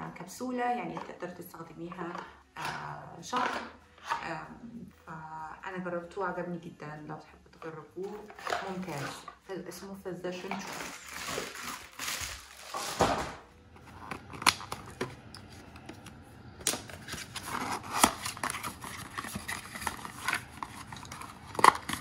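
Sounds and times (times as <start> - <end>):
plastic rustling: 10.3 - 22.0.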